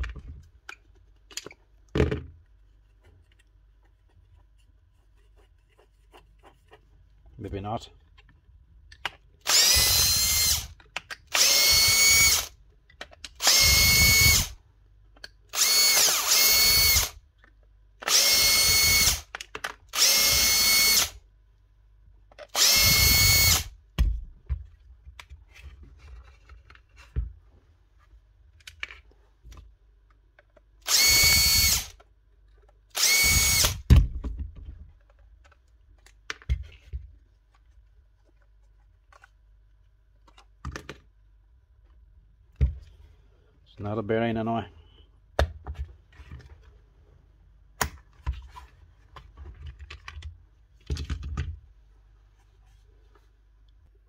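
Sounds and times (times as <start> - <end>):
electric drill whining: 9.5 - 10.7, 11.3 - 12.5, 13.4 - 14.6, 15.5 - 17.2, 18.0 - 19.3, 19.9 - 21.2, 22.5 - 23.7, 30.9 - 32.0, 33.0 - 33.9.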